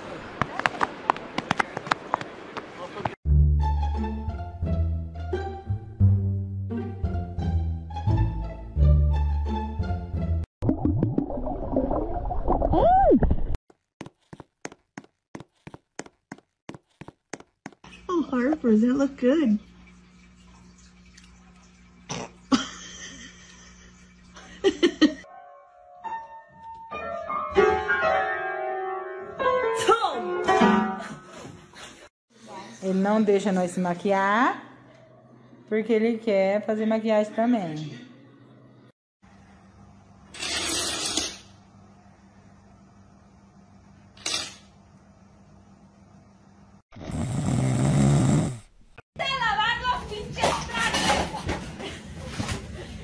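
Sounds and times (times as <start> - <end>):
piano notes played by dog paws: 25.3 - 31.6.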